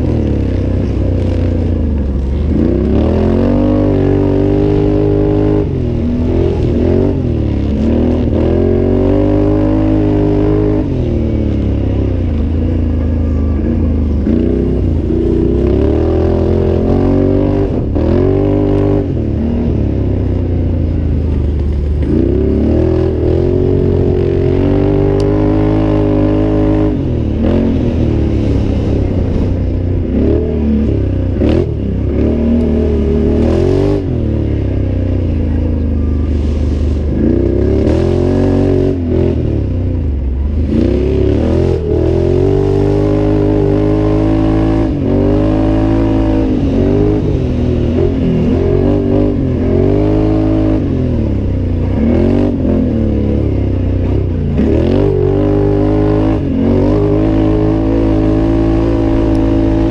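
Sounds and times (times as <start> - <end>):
engine revving: 0.0 - 59.9.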